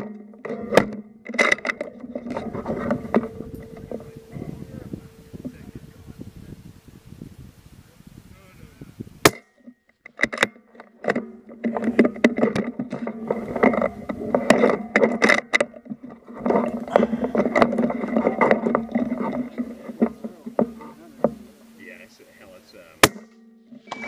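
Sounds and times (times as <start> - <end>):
muffled voices: 2.4 - 6.8, 7.8 - 9.0, 16.4 - 23.0
clicks and knocks: 9.3 - 21.8.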